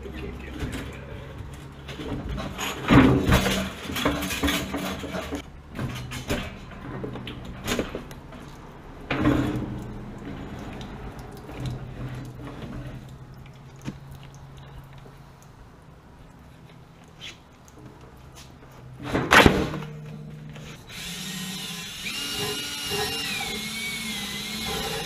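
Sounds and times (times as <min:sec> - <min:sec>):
metal tank clanking and scraping: 0:00.4 - 0:13.3, 0:17.8 - 0:20.9, 0:24.6 - 0:25.0.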